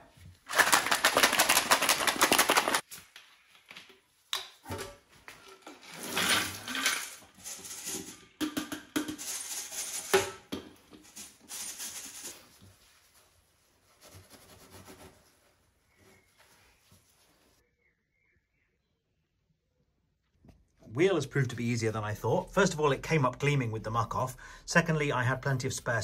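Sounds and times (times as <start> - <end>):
metal parts rattling in sieve: 5.9 - 8.4, 9.2 - 10.1.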